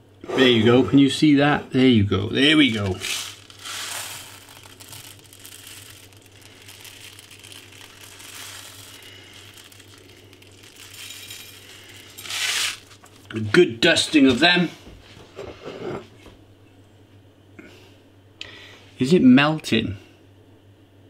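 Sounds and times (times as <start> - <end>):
sprinkles shaken onto toast: 2.6 - 13.3.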